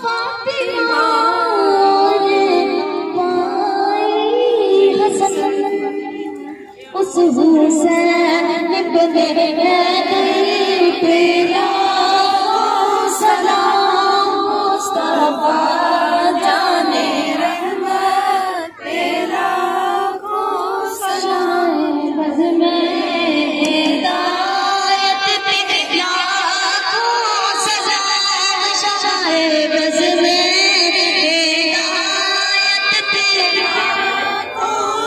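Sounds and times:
woman singing unaccompanied: 0:00.0 - 0:35.0.

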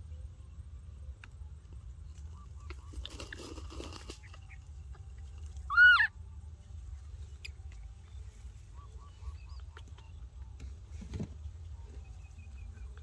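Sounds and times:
baby monkey high call: 0:05.7 - 0:06.2.

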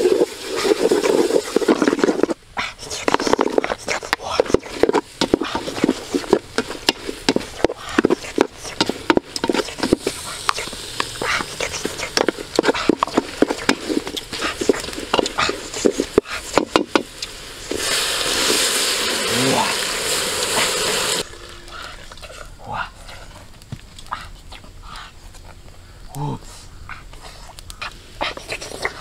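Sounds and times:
water hissing in hot pot: 0:00.0 - 0:22.4
spoon scraping metal pot: 0:00.5 - 0:17.1.

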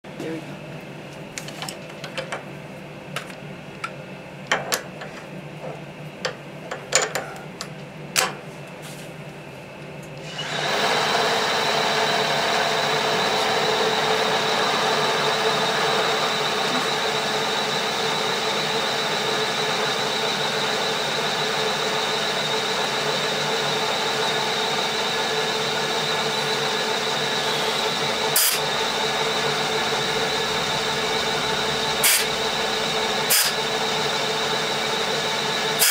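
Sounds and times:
drill cutting plastic: 0:10.2 - 0:35.9
milling machine spindle whine: 0:10.2 - 0:35.9.

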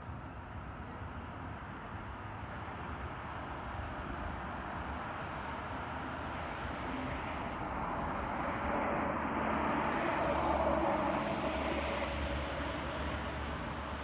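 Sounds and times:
distant vehicle engine passing: 0:06.9 - 0:14.0.

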